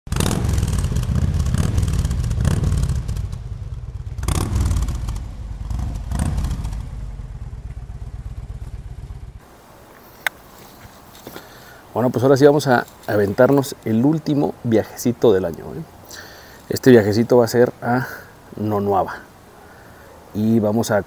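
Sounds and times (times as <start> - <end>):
motorcycle engine revving: 0.1 - 9.4.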